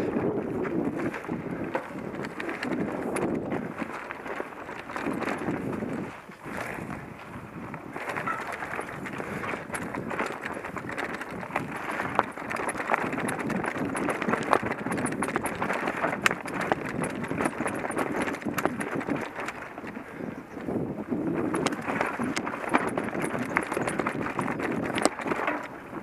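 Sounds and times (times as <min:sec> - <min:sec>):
bike rattling over stones: 0:00.0 - 0:26.0
bike tyres rumbling on rock: 0:00.0 - 0:26.0.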